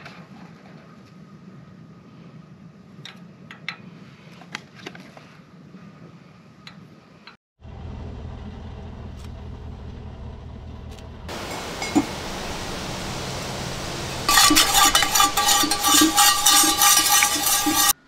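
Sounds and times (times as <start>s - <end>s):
gas burner hum: 11.3s - 18.0s.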